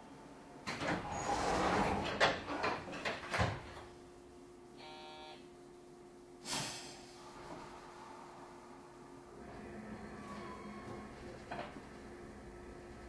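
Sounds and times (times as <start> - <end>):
steady low hum: 3.6 - 13.0
short buzzer tone: 4.8 - 5.5
air hiss of train doors: 6.4 - 8.6.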